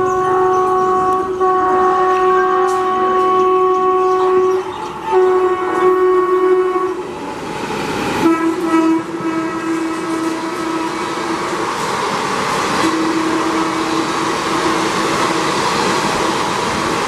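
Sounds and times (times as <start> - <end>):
locomotive air horn blasts: 0.0 - 7.0, 8.2 - 11.4, 12.8 - 15.0
train passing at speed: 0.0 - 17.0.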